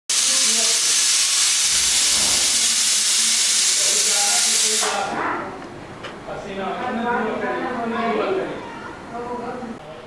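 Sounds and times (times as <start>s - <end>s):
loud steady hiss: 0.1s - 5.2s.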